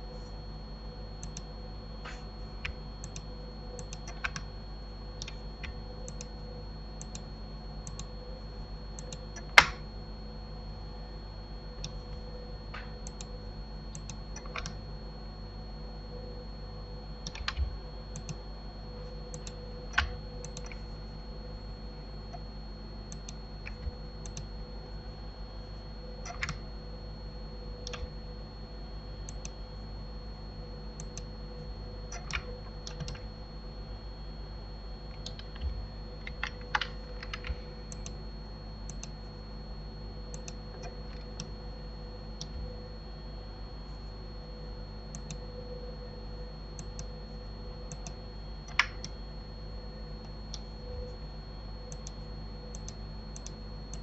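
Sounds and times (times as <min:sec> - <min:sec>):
background hum: 0:00.0 - 0:54.0
keyboard and mouse clicks: 0:01.2 - 0:04.5, 0:05.2 - 0:06.3, 0:07.0 - 0:08.1, 0:09.0 - 0:09.8, 0:13.9 - 0:14.8, 0:17.2 - 0:18.4, 0:19.3 - 0:20.8, 0:23.1 - 0:24.5, 0:26.2 - 0:26.6, 0:27.8 - 0:28.1, 0:32.1 - 0:33.3, 0:35.2 - 0:38.2, 0:38.9 - 0:39.1, 0:45.1 - 0:45.4, 0:47.9 - 0:49.1, 0:51.9 - 0:54.0.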